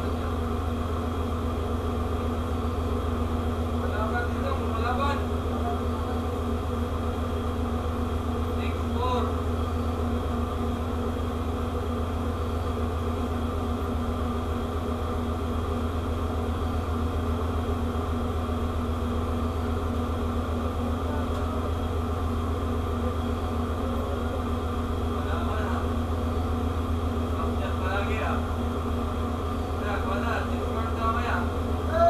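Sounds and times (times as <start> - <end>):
ship machinery droning: 0.0 - 32.0.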